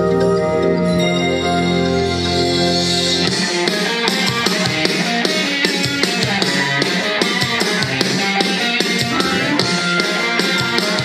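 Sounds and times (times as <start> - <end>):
drum kit beat: 3.3 - 11.0
held chords: 8.8 - 10.4.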